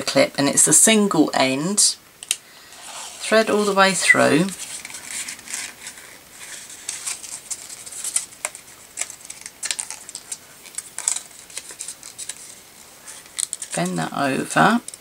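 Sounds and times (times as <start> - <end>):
paper rustling and crinkling: 2.8 - 14.0.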